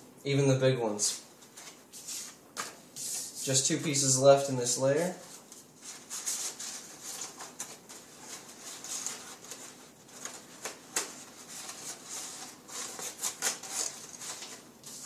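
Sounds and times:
paper rustling and crinkling: 5.0s - 15.0s
sharp paper crackles: 5.9s - 15.0s.

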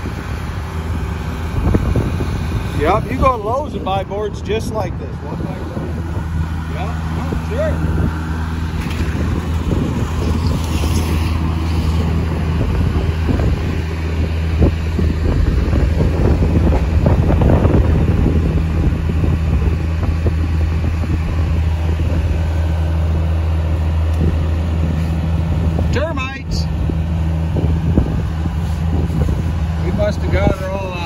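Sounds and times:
engine idling: 0.0s - 31.0s
wind buffeting microphone: 0.0s - 31.0s.

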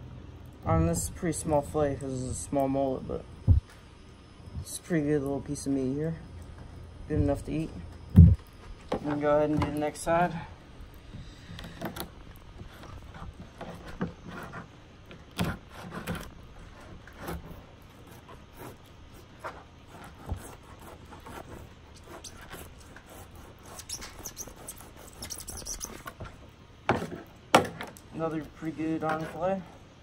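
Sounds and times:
knife slicing and scraping fish: 15.3s - 26.3s
faint high squeaks: 21.2s - 26.4s.

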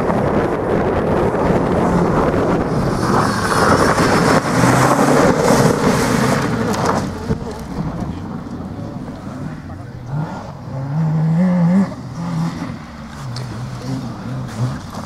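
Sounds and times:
wind buffeting microphone: 0.0s - 10.6s
rally car engine passing: 0.0s - 15.0s.

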